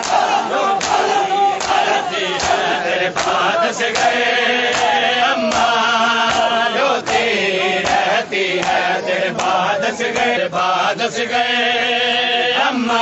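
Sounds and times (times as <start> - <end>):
chest-beating slaps: 0.0 - 10.4
men chanting a lament in unison: 0.0 - 13.0.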